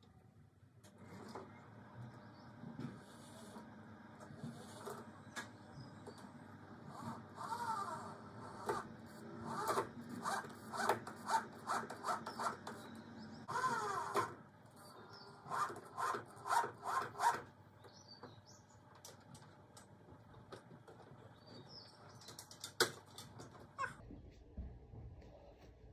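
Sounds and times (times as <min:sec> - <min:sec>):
power drill driving screws: 0:06.9 - 0:12.9, 0:13.5 - 0:14.4, 0:15.1 - 0:17.5.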